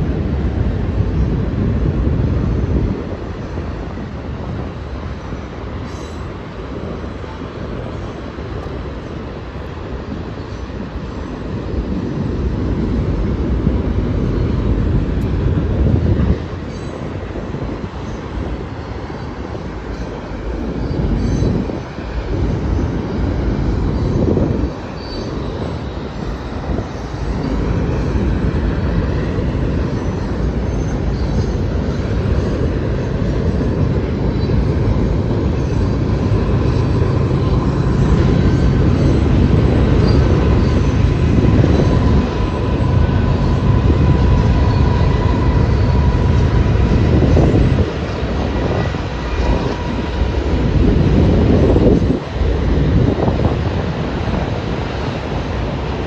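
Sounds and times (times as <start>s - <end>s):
train cars rumbling on bridge: 0.0s - 56.0s.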